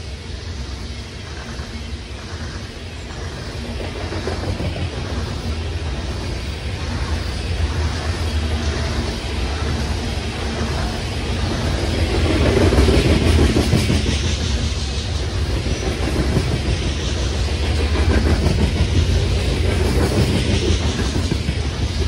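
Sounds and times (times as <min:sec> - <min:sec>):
freight train rolling on rails: 0:00.0 - 0:22.0.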